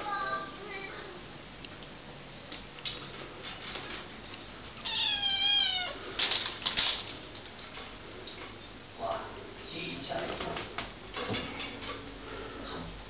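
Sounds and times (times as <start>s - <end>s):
kitten meowing: 4.8s - 6.0s.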